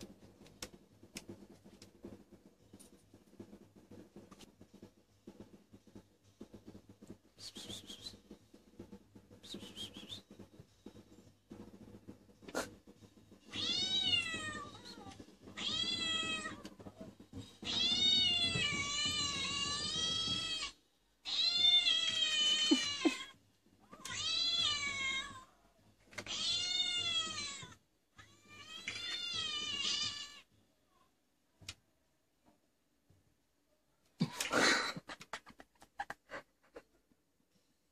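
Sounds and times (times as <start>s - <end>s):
recorded cat meows from speakers: 13.5s - 31.1s.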